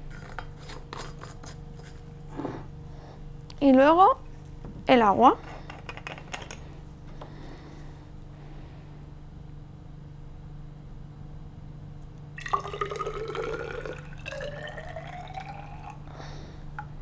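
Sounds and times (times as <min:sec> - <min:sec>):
steady low hum: 0:00.0 - 0:17.0
water pouring into cylinder: 0:12.4 - 0:16.1.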